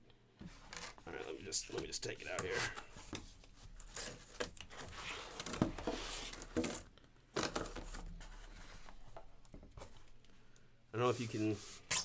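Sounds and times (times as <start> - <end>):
cardboard rustling and scraping: 0.4 - 10.0.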